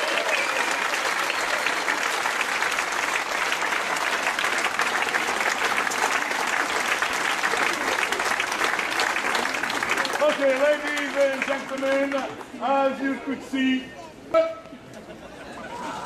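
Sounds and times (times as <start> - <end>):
crowd applauding: 0.0 - 12.6.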